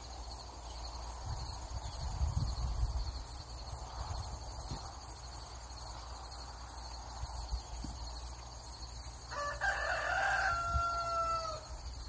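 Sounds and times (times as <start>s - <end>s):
rooster crowing: 9.3s - 11.8s.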